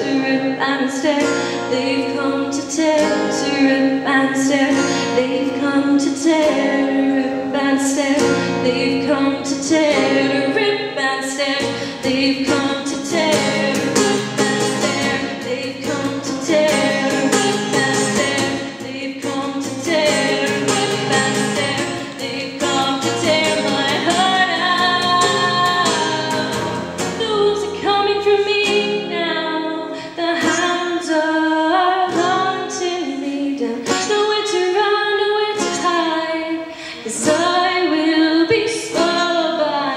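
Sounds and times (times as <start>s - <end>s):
strummed acoustic guitar: 0.0s - 39.9s
woman singing: 0.0s - 39.9s.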